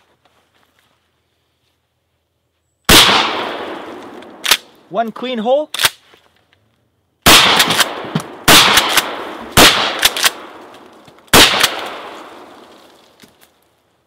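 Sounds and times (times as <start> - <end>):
shotgun shots: 2.9 - 4.7, 7.2 - 10.7, 11.3 - 12.6.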